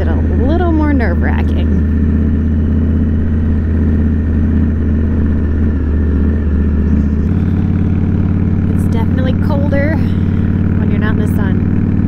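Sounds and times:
motorcycle engine on gravel: 1.8s - 12.0s.

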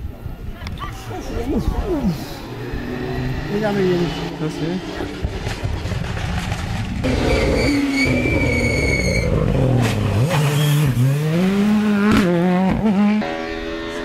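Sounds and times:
rally car engine passing: 1.8s - 14.0s
exhaust pops: 5.0s - 12.8s.

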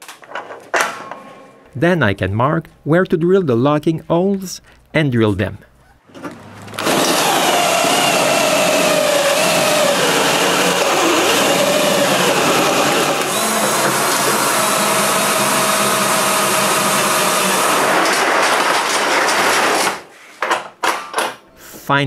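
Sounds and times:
cordless drill boring through metal: 6.8s - 17.9s.

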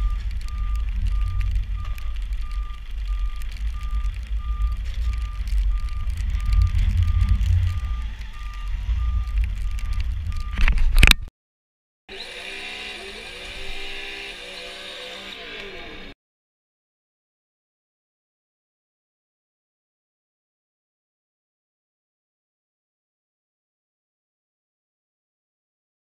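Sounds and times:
reversing alarm beeping: 0.0s - 10.7s
wind buffeting microphone: 0.0s - 11.2s
loud crackle: 0.0s - 11.3s.

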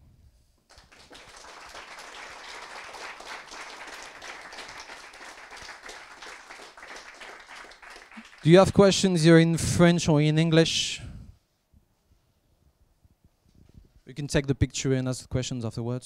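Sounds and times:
audience applauding: 0.7s - 9.2s.

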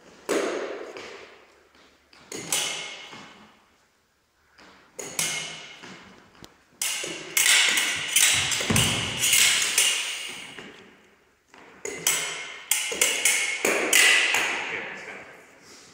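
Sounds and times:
fencing blades clinking: 2.3s - 3.2s, 5.0s - 5.9s, 6.8s - 10.8s, 11.8s - 14.6s
foot thump on wooden floor: 8.3s - 9.4s.

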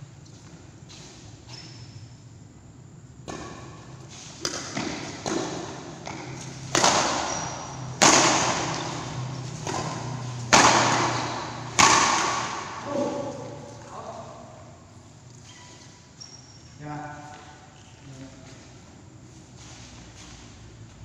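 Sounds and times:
rackets hitting shuttlecock: 3.2s - 13.9s.

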